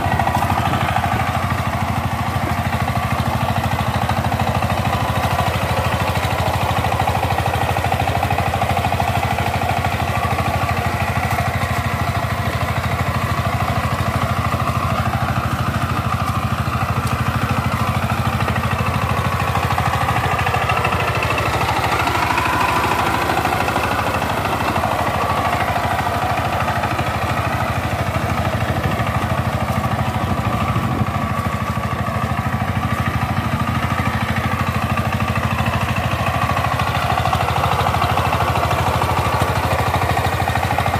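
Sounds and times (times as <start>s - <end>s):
diesel engine chugging: 0.0s - 40.9s.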